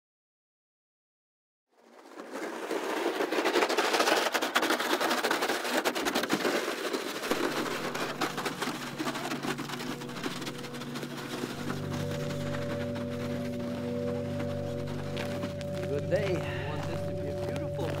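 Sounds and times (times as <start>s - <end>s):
dense crackling clicks: 1.8s - 18.0s
low sustained music tones: 7.3s - 18.0s.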